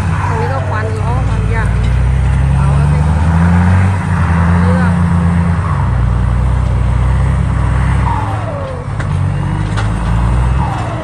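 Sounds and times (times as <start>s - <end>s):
diesel truck engine revving: 0.0s - 11.0s.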